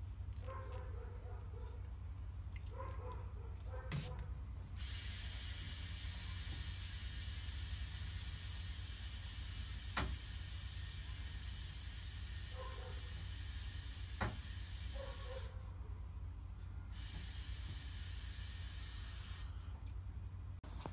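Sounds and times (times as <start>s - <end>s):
compressed air hissing: 3.9s - 4.2s, 4.8s - 15.5s, 16.9s - 19.6s.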